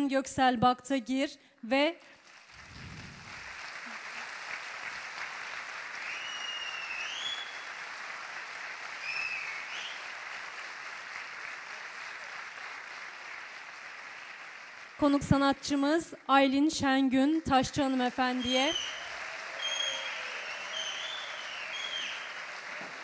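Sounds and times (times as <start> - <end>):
audience applauding: 2.2 - 15.2, 17.9 - 23.0
rising whistles: 6.0 - 7.6, 9.0 - 10.0, 18.4 - 22.4.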